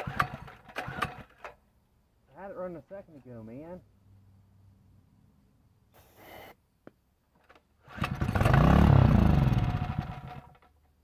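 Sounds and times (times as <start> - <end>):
aerosol spray hiss: 5.9 - 6.6
small engine revving and dying: 7.8 - 10.6.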